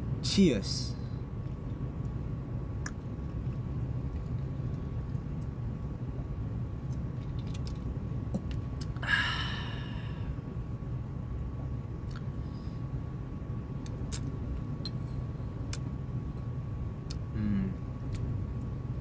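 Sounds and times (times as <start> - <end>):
steady low hum: 0.0 - 19.0
man exhaling ahh: 9.0 - 10.3.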